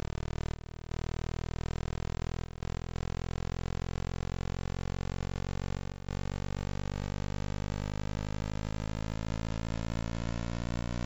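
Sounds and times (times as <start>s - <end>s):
buzzing hum rising in pitch: 3.9s - 11.0s.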